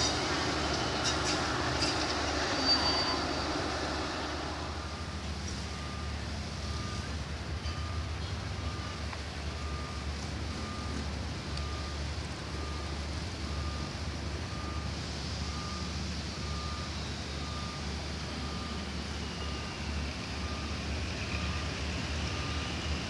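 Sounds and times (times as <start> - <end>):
diesel locomotive idling: 0.0 - 23.0
electronic warning beeps: 4.8 - 13.9, 14.5 - 22.8.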